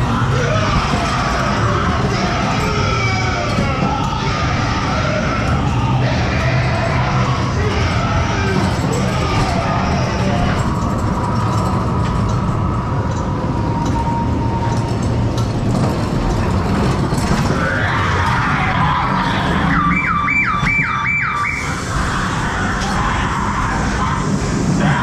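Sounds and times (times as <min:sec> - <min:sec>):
electronic siren alarm whoops: 0:19.5 - 0:24.2.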